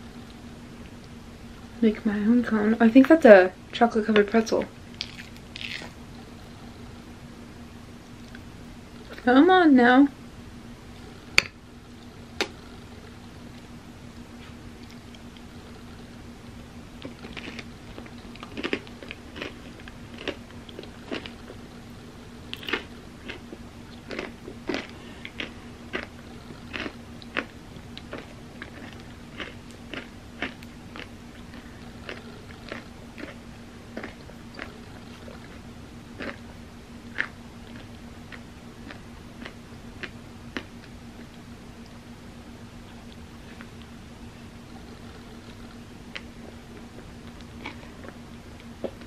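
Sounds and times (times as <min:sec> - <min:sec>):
low hum: 0:00.0 - 0:49.0
chewing crisp ice cream cone: 0:17.0 - 0:21.7, 0:22.4 - 0:42.0.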